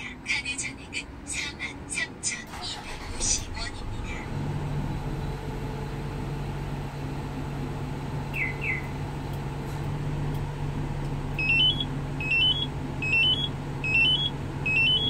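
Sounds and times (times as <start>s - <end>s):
diesel engine idling: 0.0s - 15.0s
alarm beeping rising notes: 11.4s - 15.0s.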